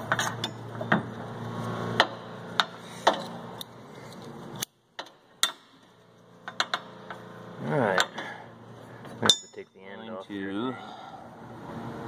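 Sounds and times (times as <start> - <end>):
steady background hum: 0.0 - 12.0.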